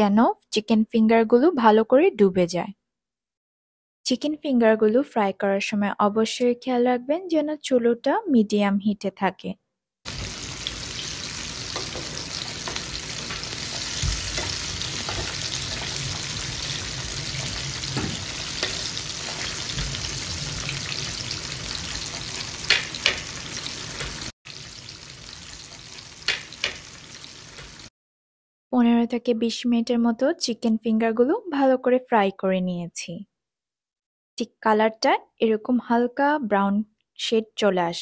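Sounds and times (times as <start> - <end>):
food deep-frying in oil: 10.1 - 27.9.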